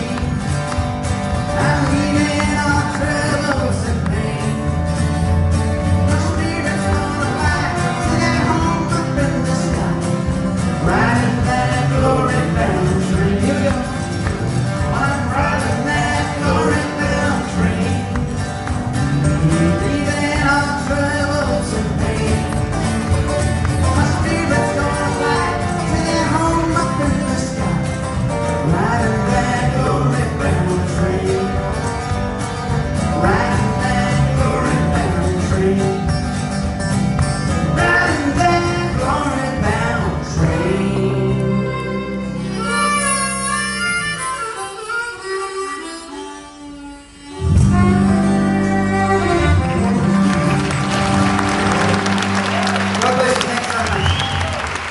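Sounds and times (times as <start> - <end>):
strummed acoustic guitar: 0.0 - 53.6
man singing: 1.4 - 18.3, 19.1 - 31.9, 33.0 - 36.6, 37.6 - 43.4.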